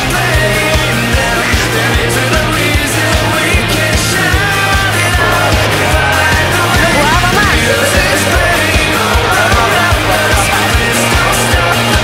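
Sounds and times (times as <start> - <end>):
background music with fast drum beat: 0.0 - 12.0.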